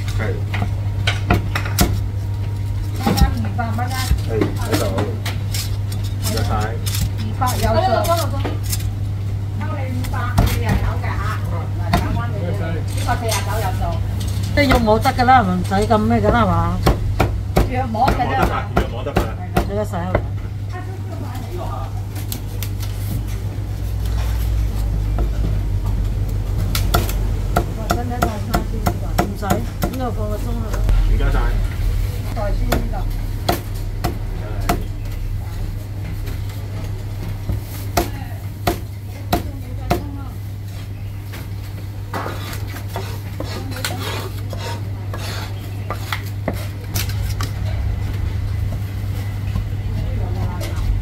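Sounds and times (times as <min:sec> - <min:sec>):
steady low hum: 0:00.0 - 0:51.0
utensils and dishes clinking: 0:12.7 - 0:16.5.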